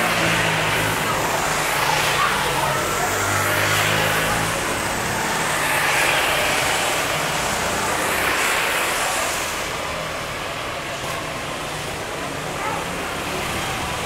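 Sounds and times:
kart engines passing: 0.0 - 14.0
tyres hissing on wet asphalt: 0.0 - 14.0.

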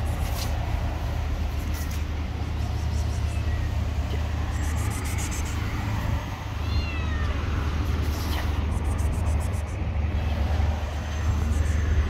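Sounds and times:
steady low rumble: 0.0 - 12.0
cat meowing: 5.6 - 7.5.

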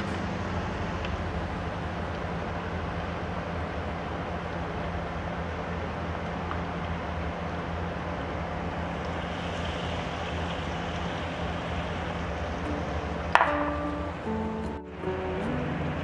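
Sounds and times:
steady low hum: 0.0 - 16.0
hot oil sizzling: 8.9 - 15.5
music: 12.6 - 16.0.

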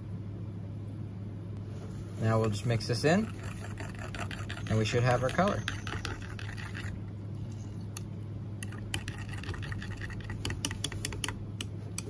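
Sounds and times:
steady low hum: 0.0 - 12.0
metal utensil stirring liquid: 2.4 - 7.0, 8.6 - 11.3.

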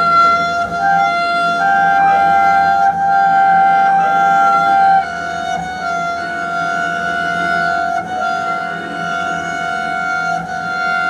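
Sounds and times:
double bass bowed in sustained tones: 0.0 - 11.0.

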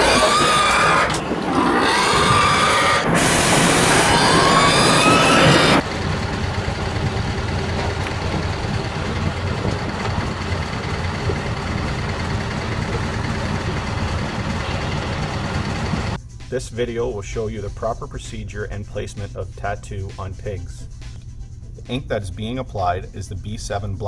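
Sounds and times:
diesel engine idling: 1.1 - 16.2.

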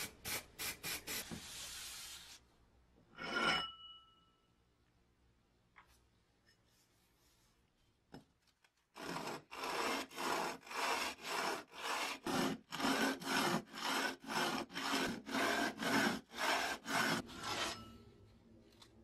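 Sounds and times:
metal scraping on sandpaper: 9.0 - 18.0.

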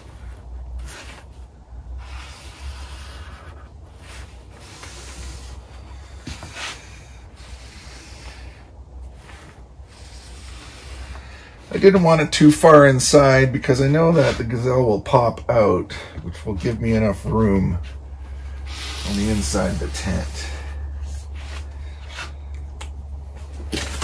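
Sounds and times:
steady low hum: 0.0 - 24.0
marker rubbing on fabric: 18.6 - 20.6.

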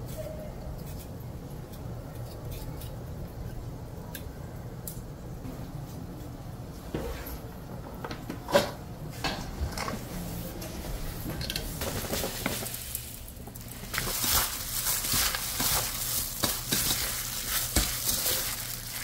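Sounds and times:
metal colander and bowls clinking: 11.4 - 19.0.

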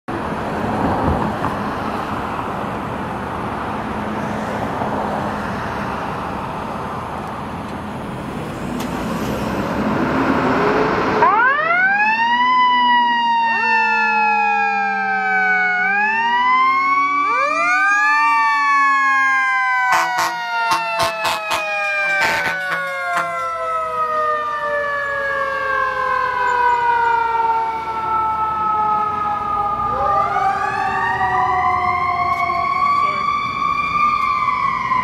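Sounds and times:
short horn blasts: 19.9 - 23.5.

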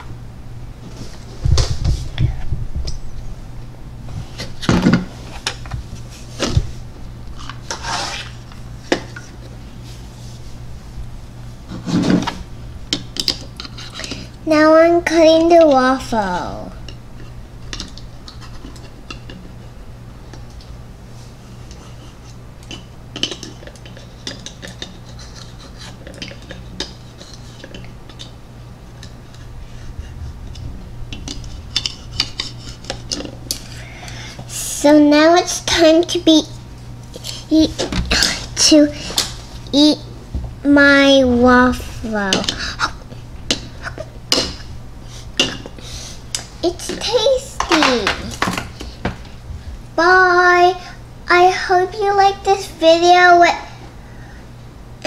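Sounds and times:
plastic sliding rub: 7.7 - 8.4.

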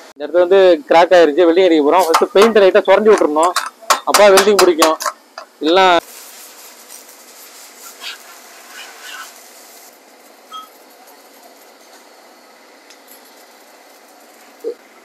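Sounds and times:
welding arc crackling: 1.8 - 15.0.

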